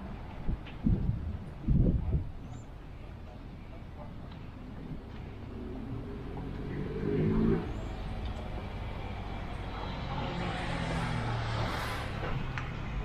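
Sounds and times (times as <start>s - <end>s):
vehicle passing: 4.9s - 13.0s.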